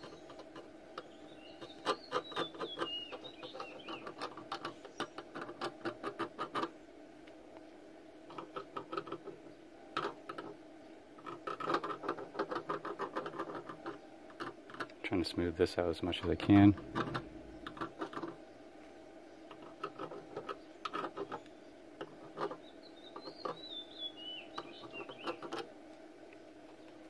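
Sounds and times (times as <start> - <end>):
welding iron scraping plastic: 11.2 - 15.3.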